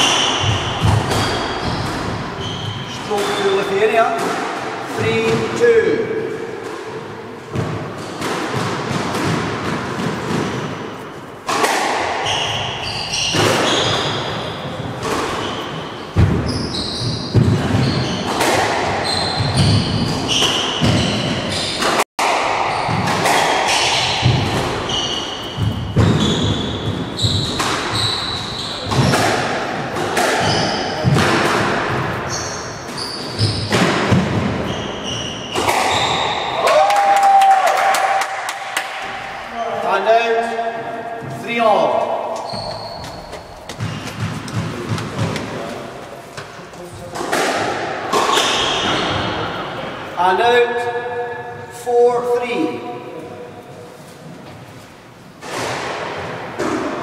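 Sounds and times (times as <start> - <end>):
shoes squeaking on wooden floor: 0.0 - 3.9, 12.2 - 22.0, 23.7 - 29.2, 30.4 - 31.2, 31.9 - 36.4, 41.2 - 47.2
squash ball hitting racquets and walls: 0.0 - 51.8, 52.6 - 57.0.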